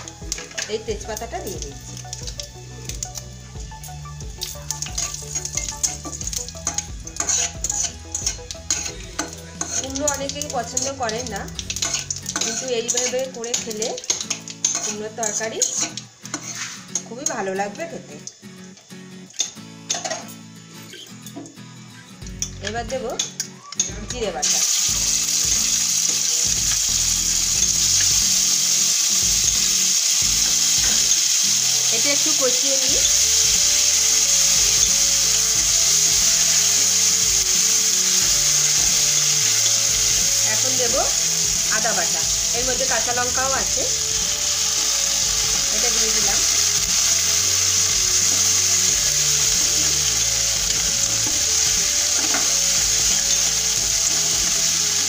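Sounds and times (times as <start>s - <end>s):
background music: 0.0s - 55.0s
paste sizzling in hot oil: 0.0s - 55.0s
spoon stirring paste: 4.7s - 11.0s.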